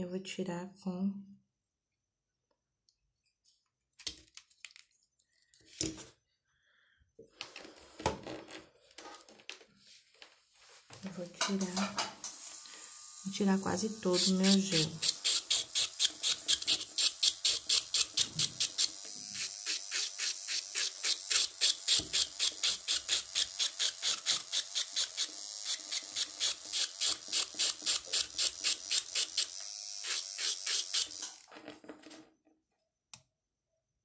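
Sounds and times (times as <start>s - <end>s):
nail drill grinding: 12.2s - 31.5s.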